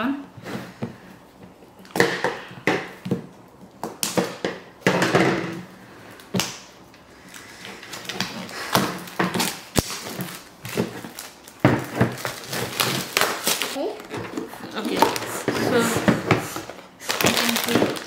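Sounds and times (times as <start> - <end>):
cellophane crinkling: 7.2 - 18.0.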